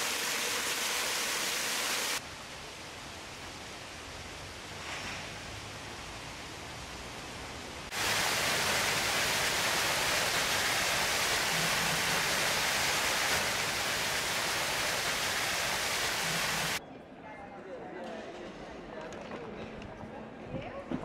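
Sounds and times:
faint outdoor hiss: 0.0s - 16.8s
water splashing into stone basin: 7.9s - 16.8s.

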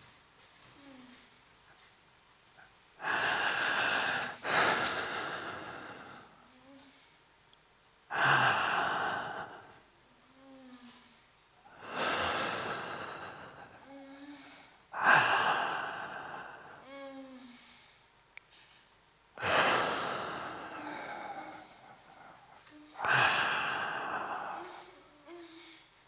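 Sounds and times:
person breathing forcefully: 3.0s - 6.4s, 8.1s - 9.8s, 11.7s - 14.0s, 15.0s - 16.8s, 19.4s - 25.0s.

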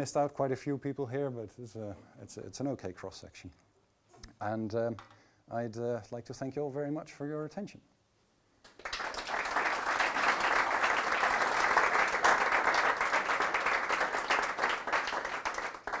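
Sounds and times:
audience applauding: 8.7s - 16.0s.

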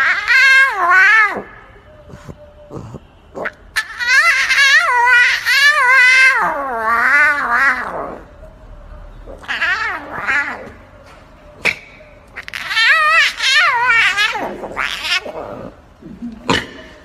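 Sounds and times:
lion cub roaring: 0.0s - 8.3s, 9.3s - 10.8s, 11.6s - 16.6s.

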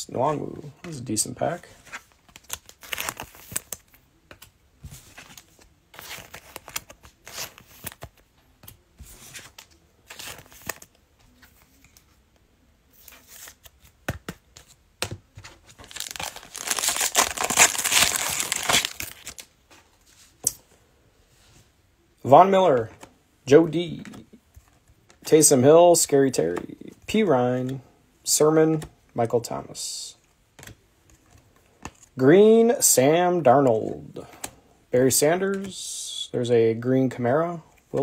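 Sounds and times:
plastic wrapper crinkling: 15.7s - 19.5s
plastic wrapper tearing: 15.8s - 19.4s.

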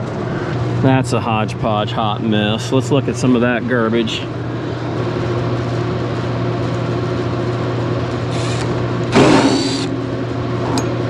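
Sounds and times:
steady low hum: 0.0s - 11.0s
cordless driver whirring: 8.3s - 9.9s.

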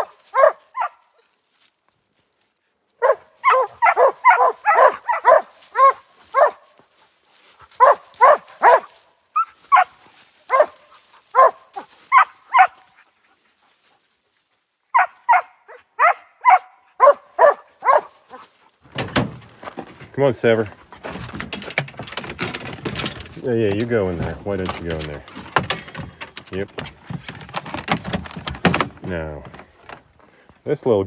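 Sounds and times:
dog barking: 0.0s - 1.3s, 3.0s - 6.7s, 7.8s - 13.0s, 14.9s - 18.4s.

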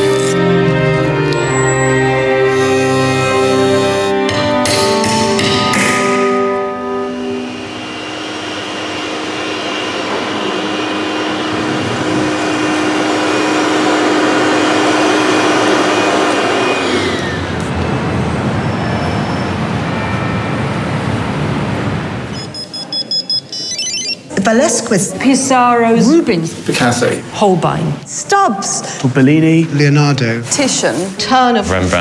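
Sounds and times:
floor polishing machine motor: 0.0s - 4.4s, 6.3s - 18.5s.

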